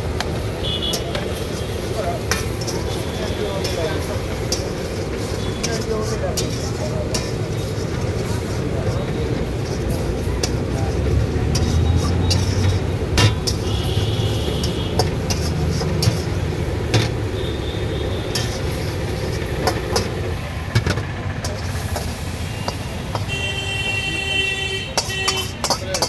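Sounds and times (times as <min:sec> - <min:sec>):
low traffic rumble: 0:00.0 - 0:26.0
metal spatula scraping wok: 0:00.4 - 0:24.0, 0:24.8 - 0:26.0
vehicle horn: 0:00.6 - 0:01.8, 0:13.4 - 0:15.1, 0:17.3 - 0:18.6, 0:22.4 - 0:25.6.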